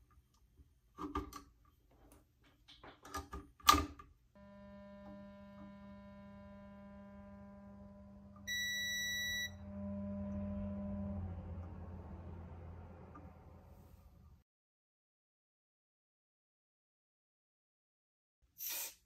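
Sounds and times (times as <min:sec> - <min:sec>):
clicks and knocks of handling: 0:00.1 - 0:04.1
amplifier low buzzing tone: 0:04.4 - 0:13.8
high electronic beep: 0:08.5 - 0:09.6
hiss: 0:18.6 - 0:19.0.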